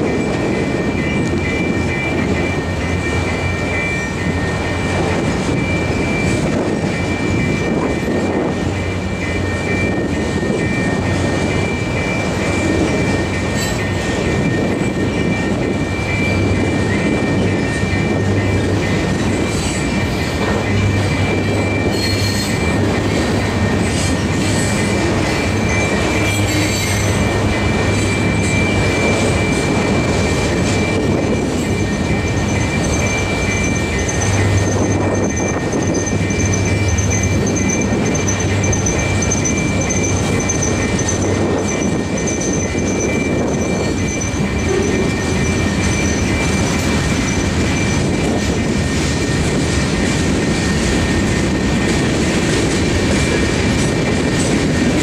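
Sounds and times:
train wheels rumbling on rails: 0.0 - 55.0
high-pitched wheel squeal: 20.8 - 22.9, 23.6 - 48.4.

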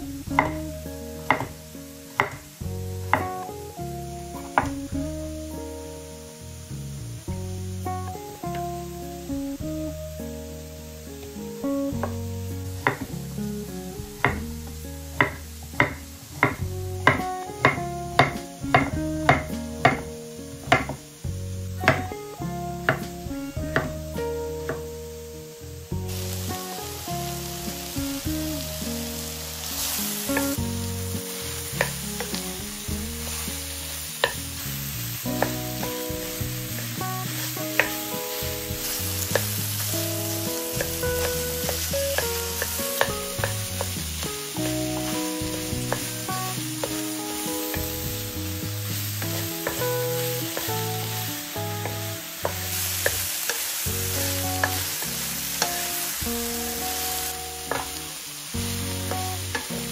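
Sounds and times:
background music: 0.0 - 59.9
food sizzling in a frying pan: 0.0 - 59.9
utensil clicking against pan: 37.7 - 38.0.

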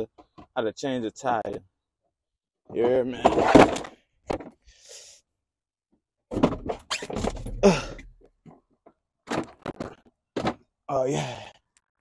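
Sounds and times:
person grunting: 7.6 - 8.0, 10.9 - 11.6.

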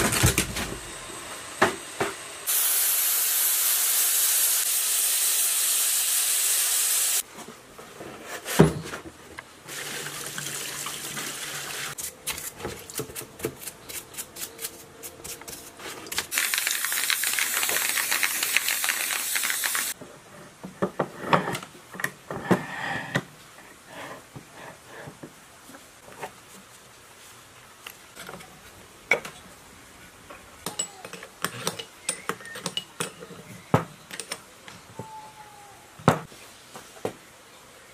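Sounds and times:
sandblasting gun hissing: 0.9 - 7.2, 16.3 - 20.0.

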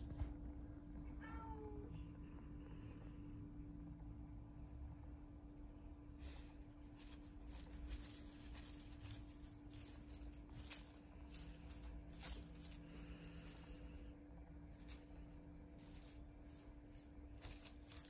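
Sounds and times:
steady low hum: 0.0 - 18.0
faint rustles: 6.2 - 18.0.

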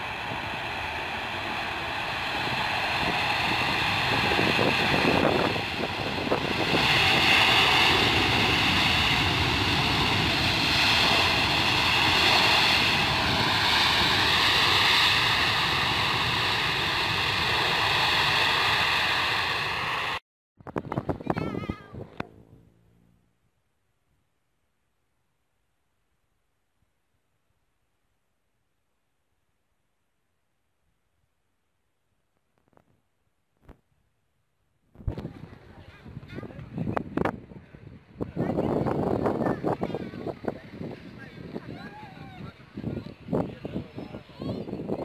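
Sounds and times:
jet engine roar with whine: 0.0 - 20.2, 35.1 - 45.0.

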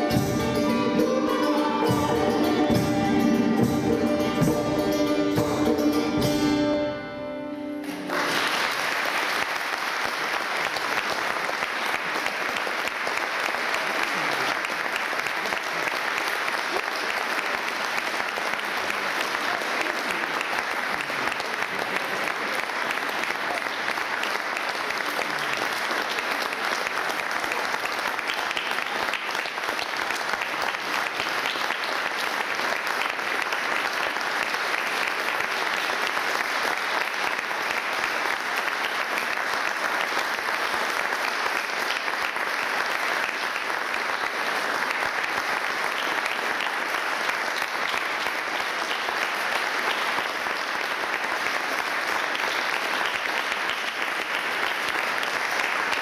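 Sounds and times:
medieval music ensemble: 0.0 - 8.2
audience applauding: 7.8 - 56.0.

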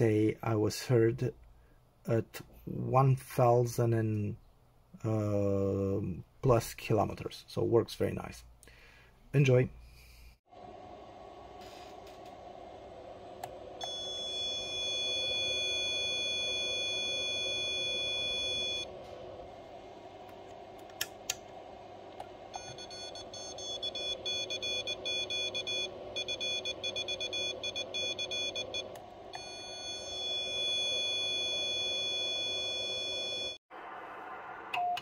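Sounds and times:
morse code tone: 13.8 - 18.9, 22.6 - 33.6.

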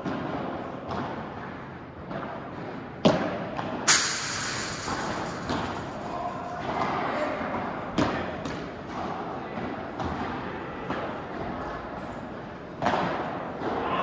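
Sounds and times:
loud ringing crash: 3.9 - 6.7.

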